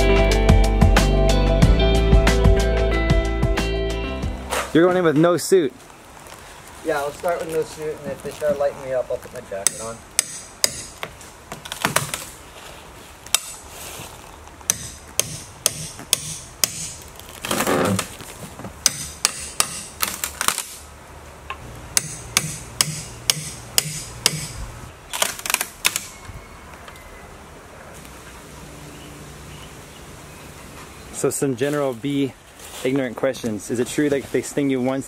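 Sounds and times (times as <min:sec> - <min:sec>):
hammer knocking on wooden boards: 0:22.0 - 0:24.6.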